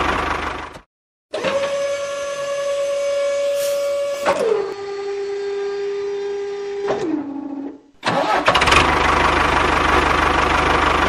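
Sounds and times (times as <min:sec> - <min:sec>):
small electric motor whine: 0:01.5 - 0:06.9.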